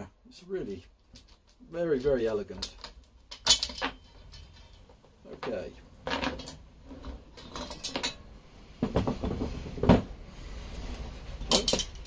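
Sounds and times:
metal clatter and knocks: 2.6s - 10.1s, 11.4s - 12.0s.

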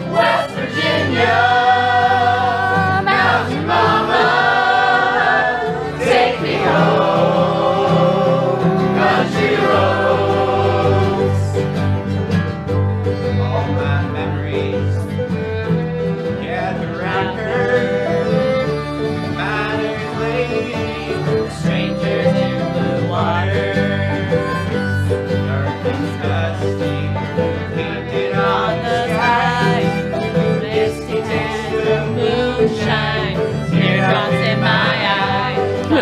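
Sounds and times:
several voices singing together: 0.0s - 11.7s, 19.4s - 36.0s
banjo and acoustic guitars: 0.0s - 36.0s.

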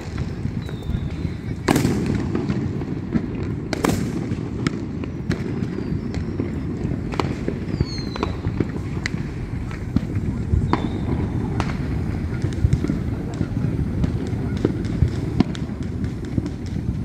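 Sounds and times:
fireworks bangs and pops: 0.0s - 17.0s
falling whistles: 0.6s - 1.5s, 7.6s - 8.5s, 10.6s - 11.3s.

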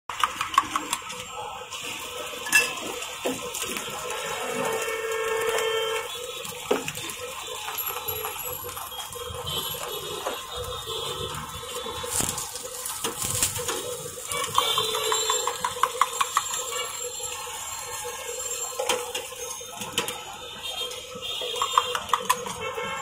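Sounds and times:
eggs frying in oil: 0.1s - 23.0s
utensils clinking on steel griddle: 2.4s - 2.8s.

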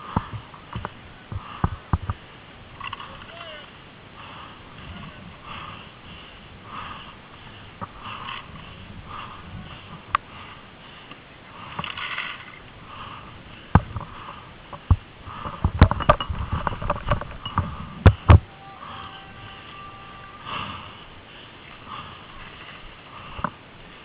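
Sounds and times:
heavy breathing: 4.1s - 16.7s, 17.4s - 24.0s.

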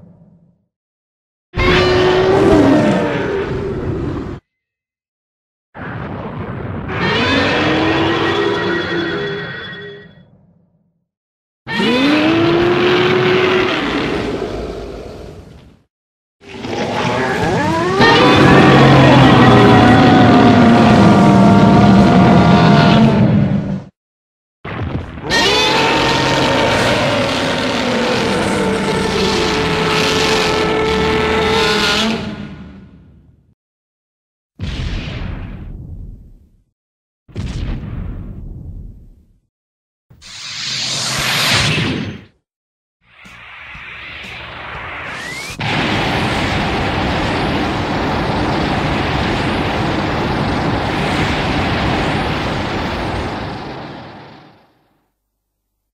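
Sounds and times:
harsh monster roar: 1.6s - 4.4s, 6.9s - 8.9s, 11.7s - 15.5s, 16.4s - 23.8s, 25.2s - 32.8s.

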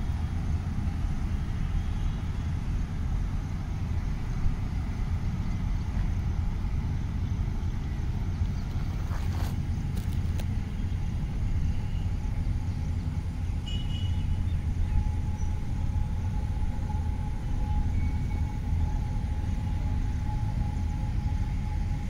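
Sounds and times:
faint steady whine: 0.0s - 22.0s
low outdoor rumble: 0.0s - 22.0s.

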